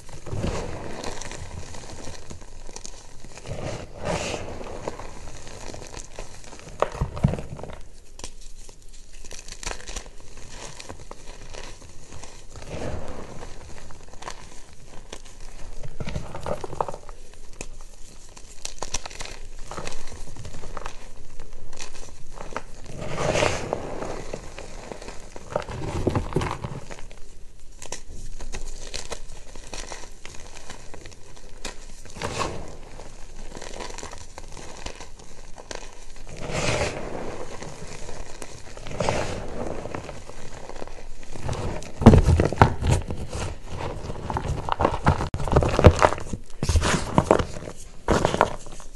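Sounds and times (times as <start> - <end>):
chalk crunching and crackling: 0.0 - 48.9
hand sweeping through chalk: 3.5 - 4.8, 22.9 - 24.4, 36.4 - 37.6, 38.8 - 40.0.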